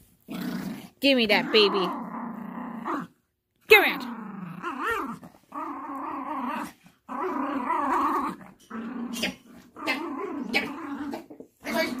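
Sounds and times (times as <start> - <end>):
small dog play-growling: 0.2 - 3.2, 3.9 - 12.0.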